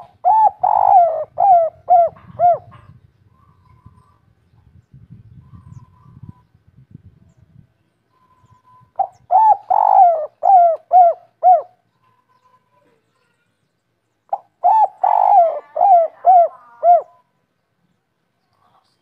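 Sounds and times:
dove cooing: 0.0s - 4.1s, 9.0s - 11.8s, 14.3s - 17.2s.

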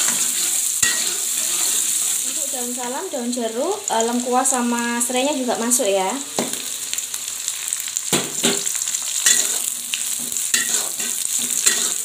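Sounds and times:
metal spatula scraping wok: 0.0s - 2.5s, 9.2s - 12.0s
food sizzling in hot oil: 0.0s - 12.0s.

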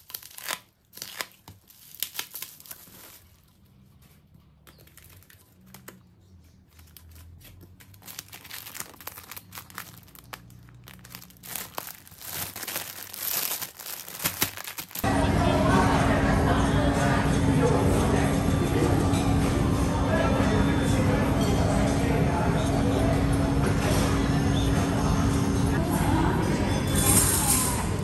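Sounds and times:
plastic packaging crinkling: 0.0s - 3.7s, 4.6s - 15.0s.

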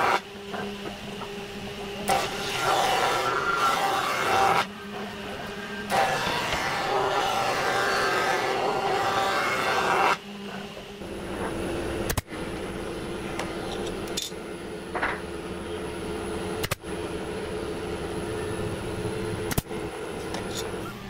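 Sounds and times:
power woodworking machine running: 0.0s - 21.0s
steady machine hum: 0.0s - 21.0s.

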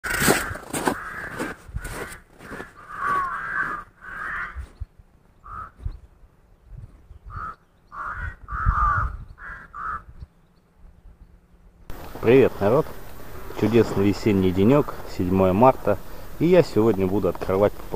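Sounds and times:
crows cawing: 0.0s - 4.8s, 5.4s - 5.9s, 7.3s - 10.2s
footsteps crunching in snow: 0.0s - 6.1s, 11.9s - 17.9s.

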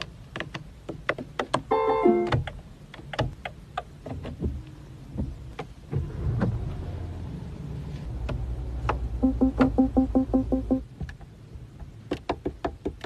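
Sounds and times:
car engine starting and idling: 2.4s - 12.0s.

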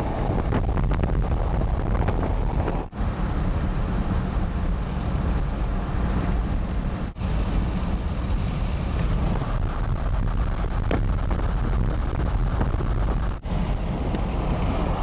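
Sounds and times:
car engine rumble: 0.0s - 15.0s
tyre noise on road: 0.0s - 15.0s
wind noise: 0.0s - 15.0s.

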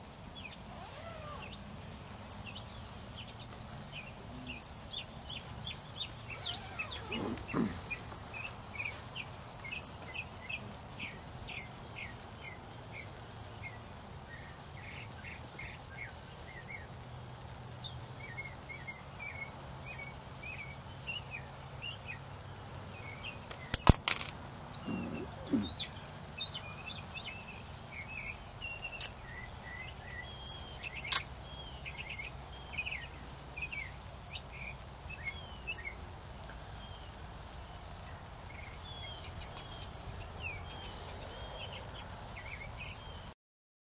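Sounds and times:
flock of blackbirds calling: 3.3s - 12.6s, 22.8s - 36.0s
sharp clicks: 23.5s - 24.3s.

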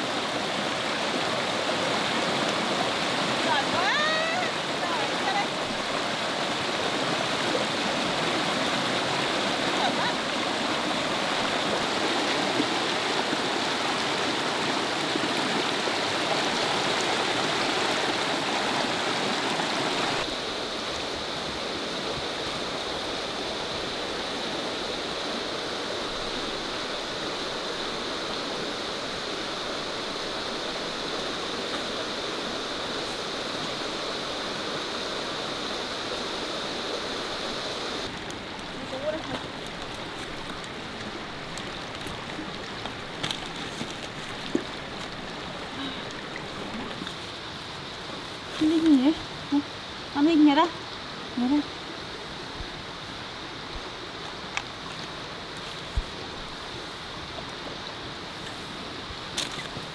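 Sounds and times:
running water rushing: 0.0s - 59.9s.

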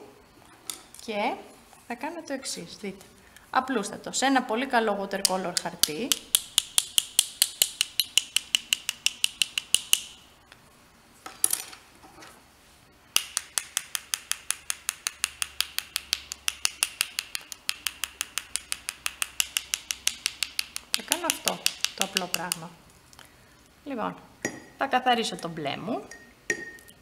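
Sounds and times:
paintbrushes tapping together: 13.2s - 22.7s.

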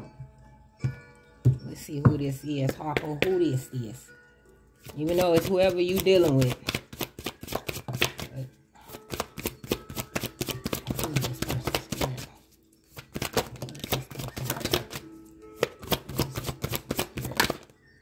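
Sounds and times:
cards being shuffled: 4.8s - 15.0s, 15.6s - 17.7s.

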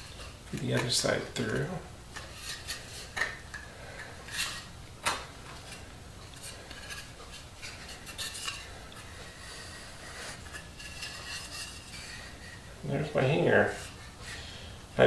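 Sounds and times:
brass rod scraping through wood: 6.4s - 12.6s.

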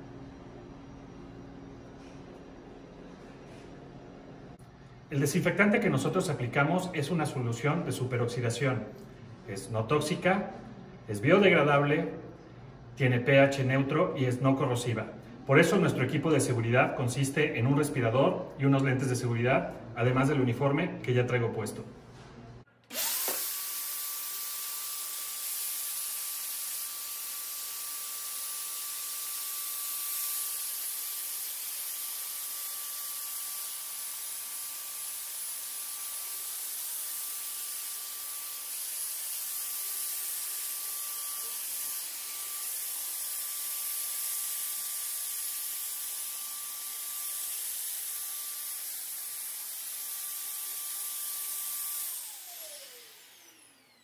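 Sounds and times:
sprayer mist hissing: 23.0s - 23.6s
high motor whine: 37.9s - 54.0s.

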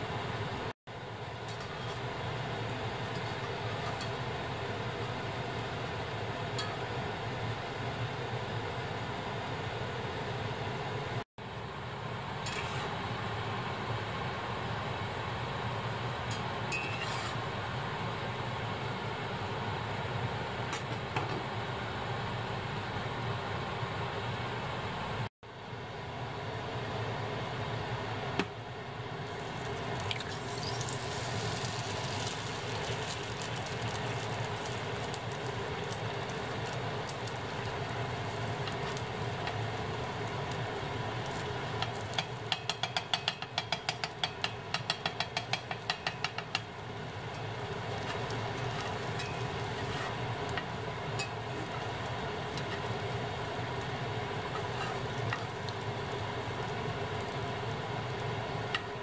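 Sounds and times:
metal spatula scraping pan: 16.7s - 17.4s, 48.0s - 50.6s, 54.5s - 55.5s
egg sizzling in a pan: 29.2s - 59.0s.

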